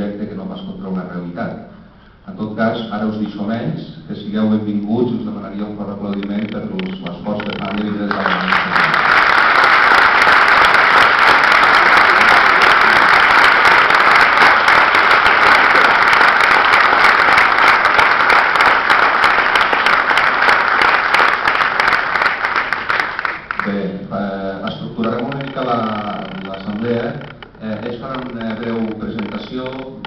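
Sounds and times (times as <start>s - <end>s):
audience applauding: 7.4s - 23.7s.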